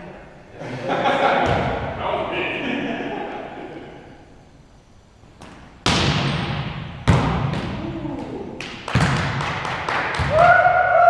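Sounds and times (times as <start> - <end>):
hand slapping volleyball: 5.4 - 10.6.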